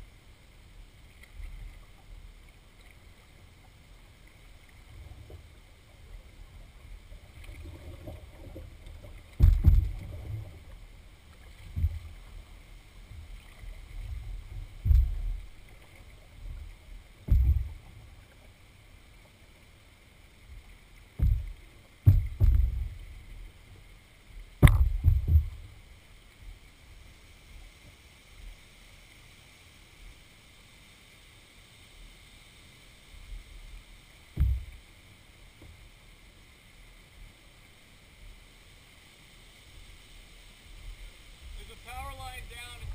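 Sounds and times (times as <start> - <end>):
water against hull: 0.0 - 30.5, 32.1 - 38.5, 39.6 - 42.9
paddle strokes thudding: 7.5 - 10.7, 11.3 - 12.3, 13.1 - 18.4, 21.1 - 23.3, 24.6 - 25.8, 34.3 - 34.8
sharp knock on canoe: 9.3 - 10.0, 17.2 - 17.8, 21.2 - 22.9, 24.6 - 25.6, 34.4 - 34.7.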